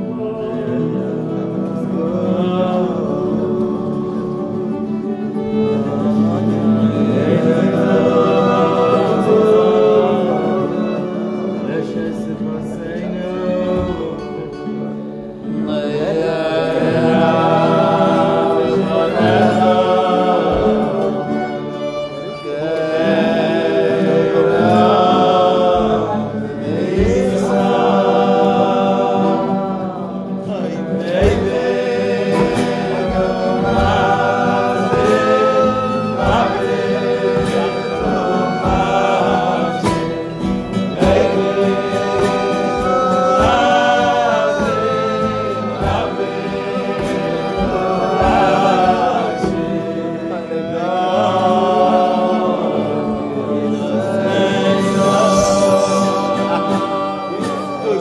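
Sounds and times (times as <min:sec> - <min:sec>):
group of voices singing: 0:00.0 - 0:58.0
instrumental accompaniment: 0:00.0 - 0:58.0.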